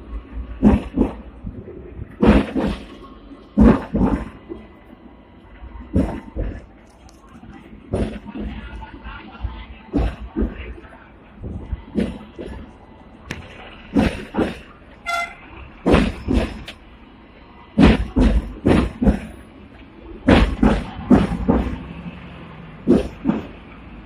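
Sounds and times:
tram rumble: 0.0s - 24.0s
tram wheels clattering over rail joints: 0.0s - 24.0s
tram horn toot: 14.9s - 15.7s.

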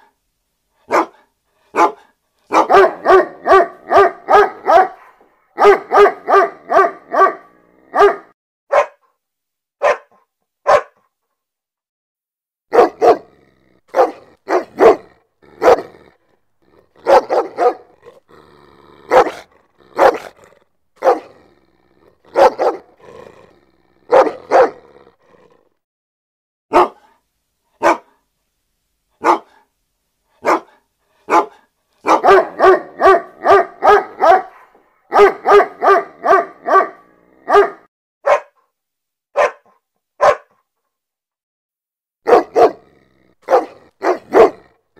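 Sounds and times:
dog barking: 0.8s - 9.1s, 9.8s - 11.1s, 12.7s - 18.2s, 19.0s - 23.2s, 24.0s - 24.9s, 26.7s - 27.2s, 27.8s - 28.2s, 29.2s - 29.7s, 30.4s - 38.7s, 39.3s - 40.6s, 42.2s - 44.7s.

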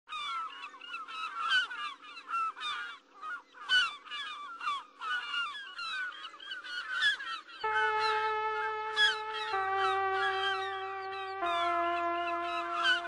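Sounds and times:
flock of birds squawking: 0.1s - 13.0s
faint steady hum: 7.6s - 13.0s.

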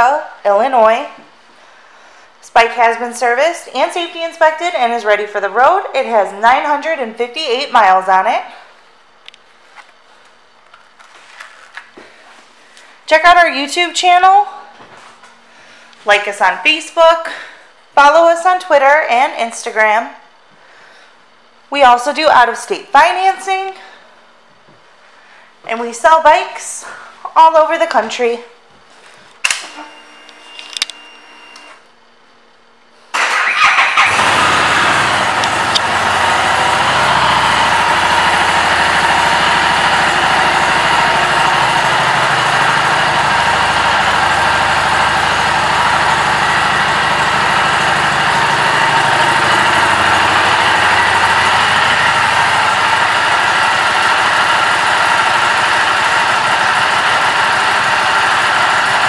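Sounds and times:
motorcycle starter cranking: 33.2s - 59.0s
motorcycle engine idling: 33.7s - 59.0s.

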